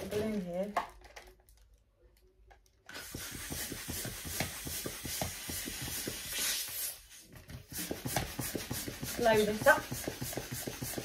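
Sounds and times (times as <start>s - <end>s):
balloon pump hiss and knock: 2.9s - 11.0s.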